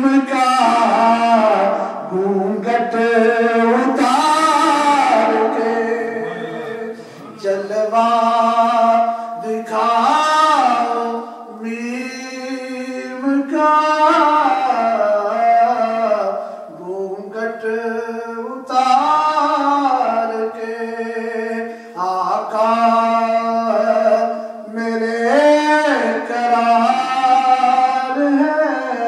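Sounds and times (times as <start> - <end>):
man singing through a microphone: 0.0 - 29.0.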